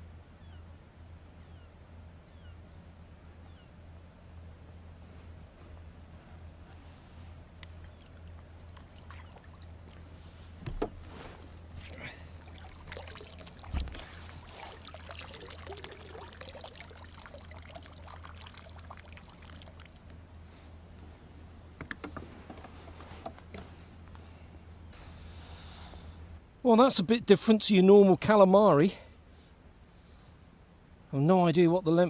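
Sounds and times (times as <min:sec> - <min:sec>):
water splashing and dripping: 0:07.6 - 0:10.0, 0:11.8 - 0:20.2.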